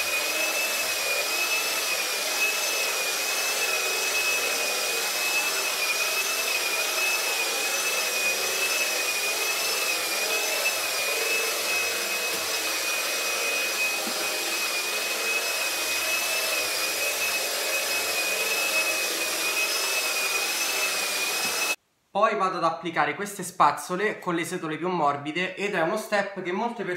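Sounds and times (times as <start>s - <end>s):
floor polisher whining: 0.0s - 21.8s
brushes rushing over floor: 6.9s - 21.8s.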